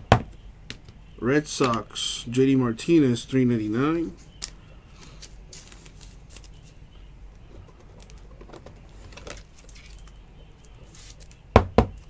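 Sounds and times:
low steady hum: 0.0 - 12.0
handling plastic card holders: 4.2 - 6.8, 7.4 - 11.5.

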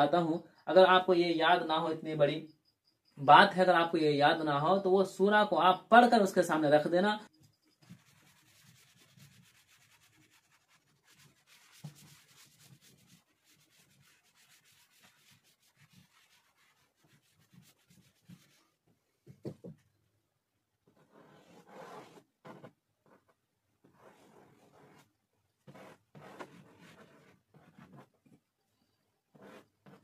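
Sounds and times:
duster rubbing chalkboard: 7.8 - 18.7, 21.0 - 22.7, 23.8 - 28.1, 29.4 - 30.0
chalk scratching on board: 7.8 - 18.8, 21.0 - 23.2, 23.8 - 28.1, 29.3 - 30.0.

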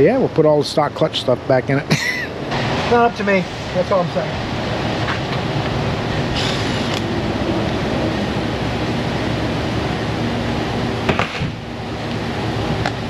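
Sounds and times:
mechanical hum and hiss: 0.0 - 13.0.

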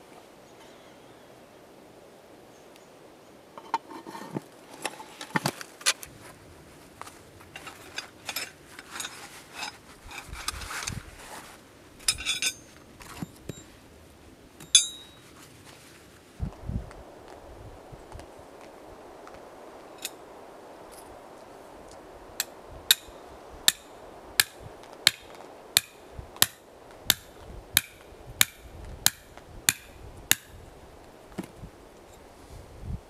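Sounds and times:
steel rods clinking: 12.0 - 13.7, 14.6 - 15.2
sharp ringing metal clink: 14.7 - 15.2.

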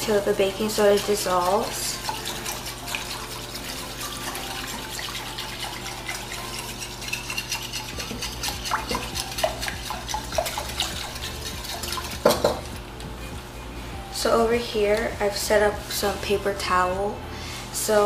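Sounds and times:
whisk swishing water in glass bowl: 0.0 - 12.9.

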